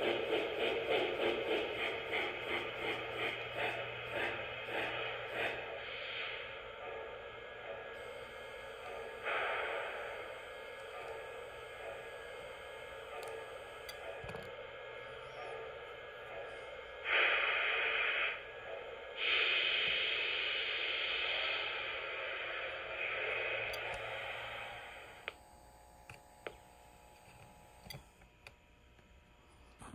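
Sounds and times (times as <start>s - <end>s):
steam hiss from small speaker: 0.0s - 6.6s, 8.0s - 14.1s, 17.0s - 18.6s, 19.2s - 25.4s.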